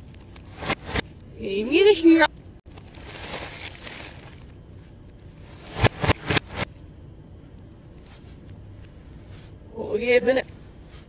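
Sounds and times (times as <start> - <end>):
plastic bag crinkling: 2.7 - 5.8.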